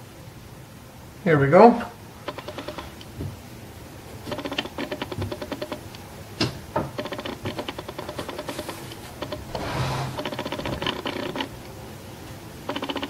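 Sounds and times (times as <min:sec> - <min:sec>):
faint hum: 0:00.0 - 0:13.0
fast even ticking: 0:02.2 - 0:03.1, 0:04.2 - 0:06.0, 0:06.8 - 0:11.8, 0:12.6 - 0:13.0.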